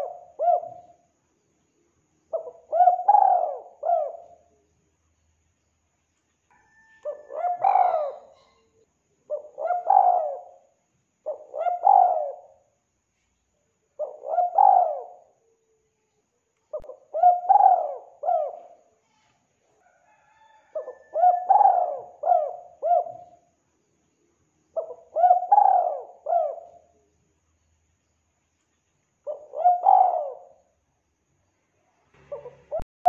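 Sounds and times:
dove cooing: 0.0s - 1.0s, 2.3s - 4.5s, 6.6s - 8.7s, 9.3s - 12.6s, 14.0s - 15.6s, 16.7s - 18.9s, 20.3s - 23.4s, 24.8s - 27.0s, 29.3s - 30.7s, 32.2s - 32.8s.

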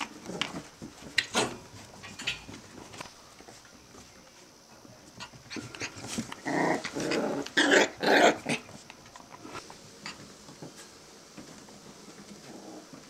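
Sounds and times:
puppies growling: 0.0s - 0.9s, 5.2s - 8.8s, 12.4s - 13.0s.

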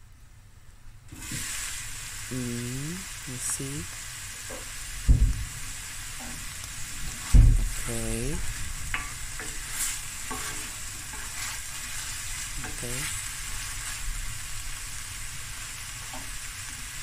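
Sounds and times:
onions sizzling in a frying pan: 1.0s - 17.0s
wooden spoon scraping a pan: 6.2s - 14.3s.

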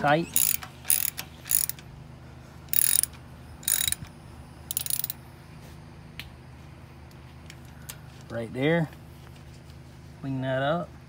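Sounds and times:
hand ratchet clicking: 0.4s - 1.8s, 2.7s - 4.0s, 4.7s - 5.2s.

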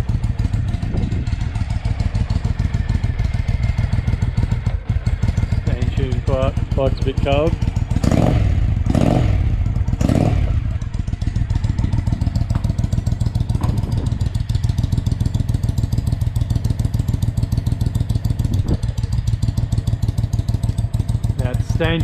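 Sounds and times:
motorcycle engine revving and idling: 0.0s - 22.0s.

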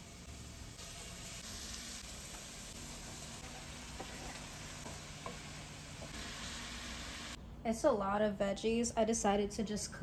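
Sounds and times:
vegetables sizzling in a skillet: 0.0s - 7.4s.

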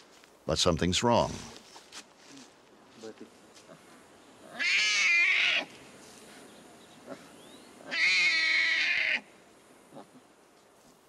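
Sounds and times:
tiger cub crying: 4.4s - 5.7s, 7.8s - 9.3s.

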